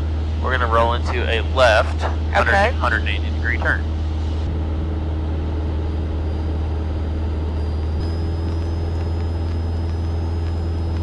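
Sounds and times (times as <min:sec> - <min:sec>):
airplane engine and propeller droning: 0:00.0 - 0:11.0.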